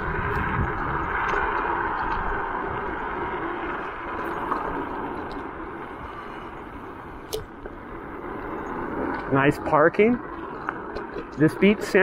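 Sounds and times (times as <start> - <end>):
wind rushing: 0.0 - 9.6
scooter tyres rolling on asphalt: 0.0 - 12.0.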